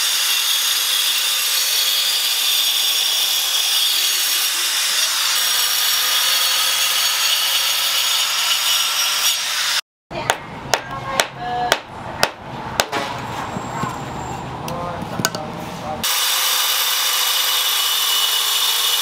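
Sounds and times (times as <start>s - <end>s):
angle grinder cutting stone: 0.0s - 9.8s, 16.0s - 19.0s
hammer striking stone: 10.3s - 13.0s.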